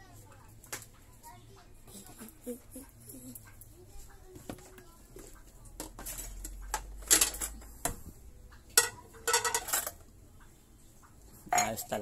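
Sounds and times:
dishes clinking while washed: 8.7s - 10.1s, 11.5s - 12.0s.

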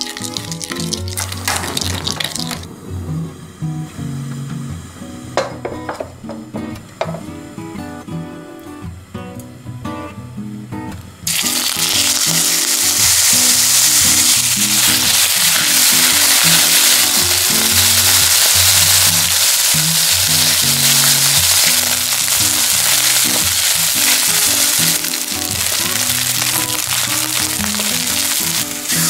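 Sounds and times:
chicken sizzling in oil: 0.0s - 2.7s, 11.3s - 29.0s.

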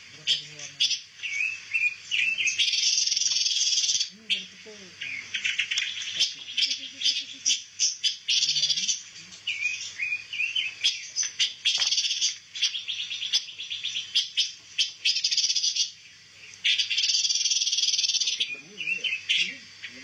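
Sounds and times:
songbirds chirping: 0.0s - 20.0s.

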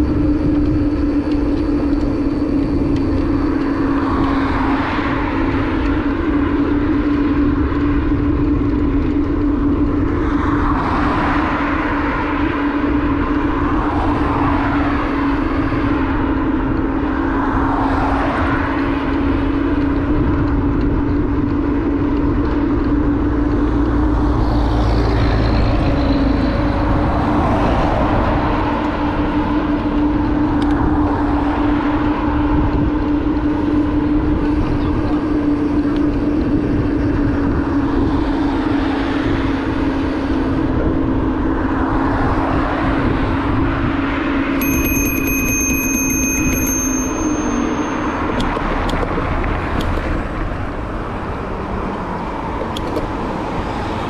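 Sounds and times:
motorbike engine cruising: 0.0s - 54.0s
wind rumbling on microphone: 0.0s - 54.0s.

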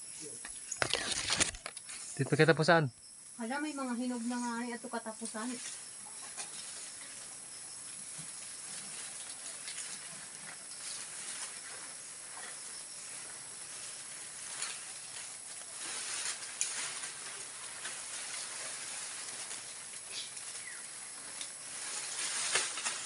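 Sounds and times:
leaves and branches rustling: 0.1s - 23.0s.

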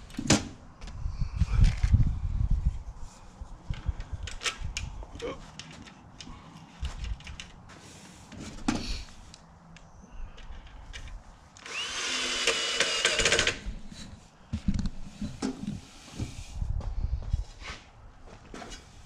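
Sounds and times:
cordless drill whining: 11.6s - 13.6s.

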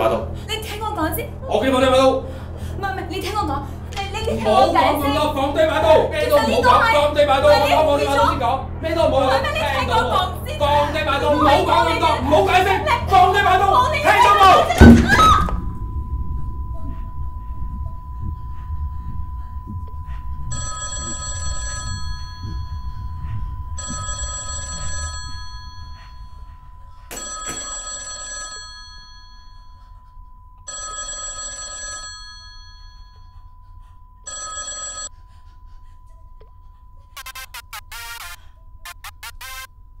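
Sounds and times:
thin steady tone: 15.6s - 27.2s
phone ringtone ringing: 20.5s - 23.0s, 23.7s - 26.3s, 27.1s - 29.9s, 30.6s - 33.5s, 34.2s - 35.2s, 37.2s - 39.7s.

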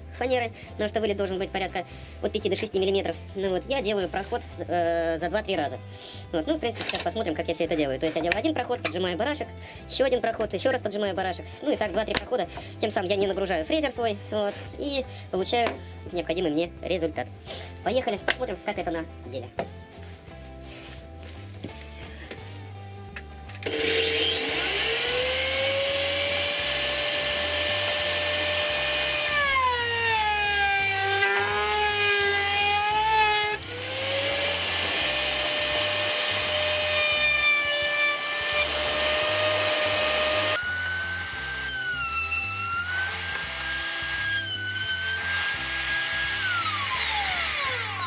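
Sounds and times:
router motor whining: 23.6s - 48.0s
router bit cutting plywood: 23.7s - 48.0s.

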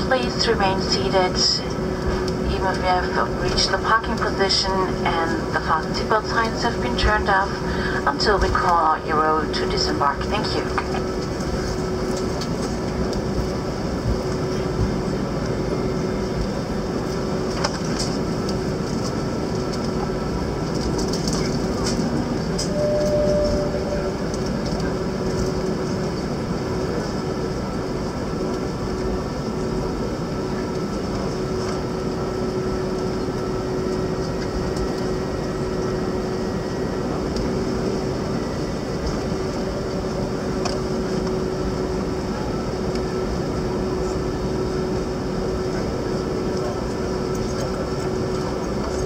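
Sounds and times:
aircraft engines humming and whining: 0.0s - 49.0s
short higher tone: 22.6s - 24.2s.

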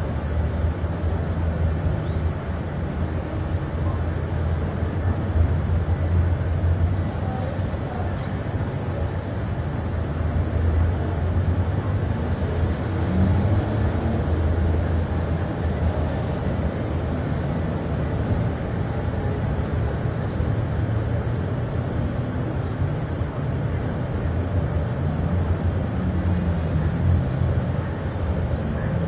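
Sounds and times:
low rumble with hiss: 0.0s - 29.0s
small birds chirping: 2.0s - 2.5s.

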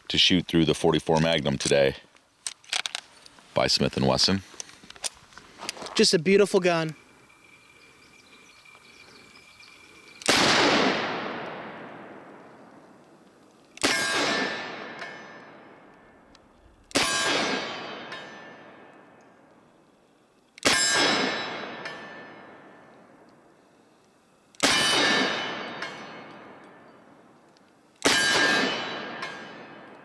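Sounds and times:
gunshot echo: 10.2s - 13.0s, 13.8s - 16.1s, 16.9s - 19.1s, 24.6s - 26.6s, 28.0s - 30.0s.

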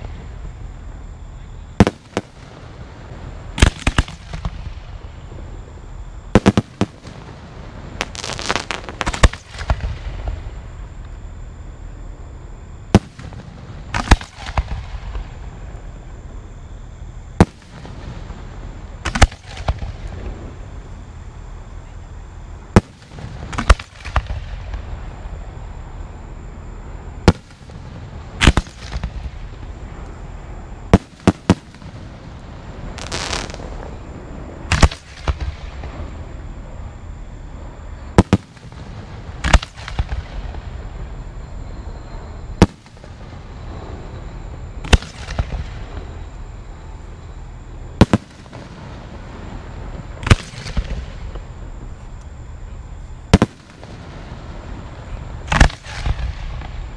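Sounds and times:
fireworks shells bursting: 8.0s - 9.9s, 32.9s - 34.0s.

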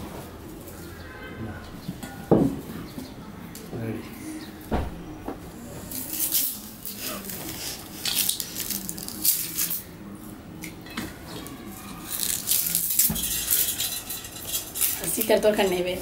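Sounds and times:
sugar cane peel cracking and ripping: 5.9s - 9.9s, 11.8s - 13.8s.

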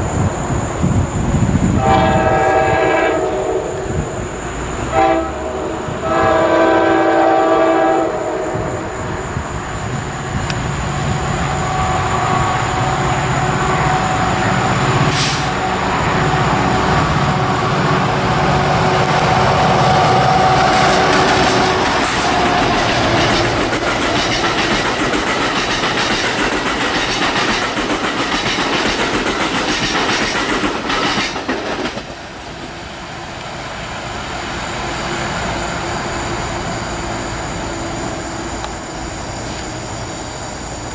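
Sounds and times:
train rumbling: 0.0s - 40.9s
train air horn blasts: 1.8s - 4.2s, 4.9s - 9.0s.

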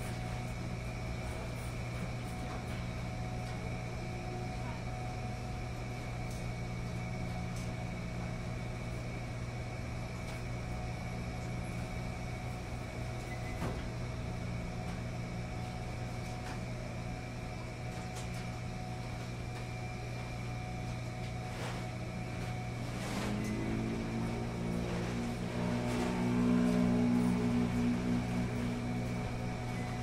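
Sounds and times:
washing machines humming: 0.0s - 30.0s.

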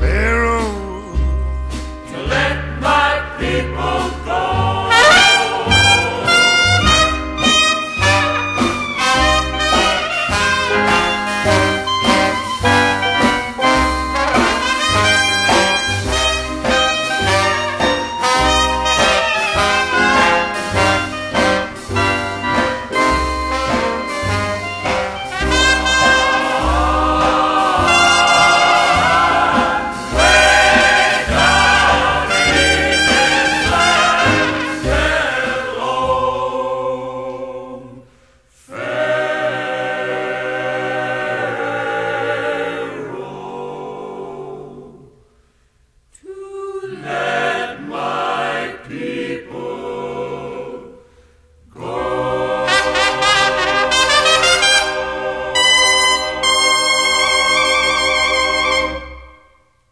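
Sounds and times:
low beat: 0.0s - 2.2s
gospel choir with brass: 1.7s - 45.4s, 46.2s - 59.8s
trumpet: 4.8s - 35.6s, 51.8s - 59.8s.

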